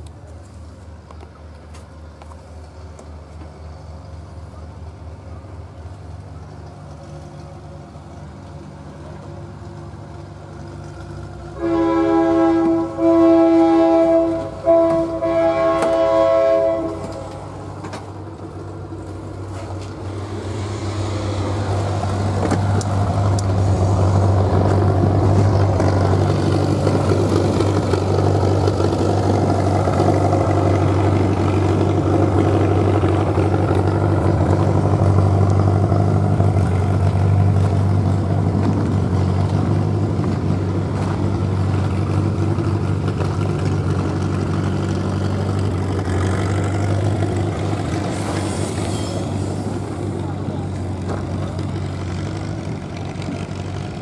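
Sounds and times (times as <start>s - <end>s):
diesel locomotive engine rumble: 0.0s - 54.0s
locomotive air horn chord: 11.6s - 17.6s.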